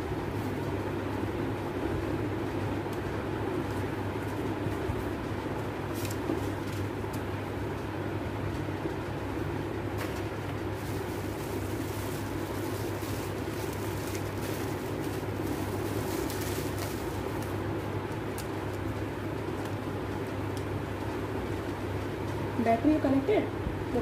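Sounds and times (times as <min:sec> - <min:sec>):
steady low hum: 0:00.0 - 0:24.0
paper and bubble wrap crinkling: 0:02.9 - 0:07.8, 0:09.8 - 0:23.3.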